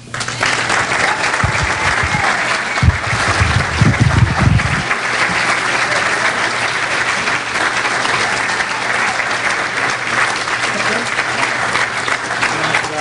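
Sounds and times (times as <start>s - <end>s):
audience applauding: 0.0s - 13.0s
microphone thumps: 1.4s - 4.9s.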